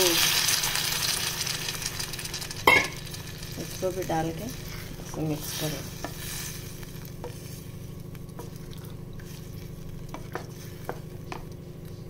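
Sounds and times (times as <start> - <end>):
faint sizzle: 0.0 - 12.0
steady low hum: 0.0 - 12.0
spatula stirring stew: 4.5 - 12.0.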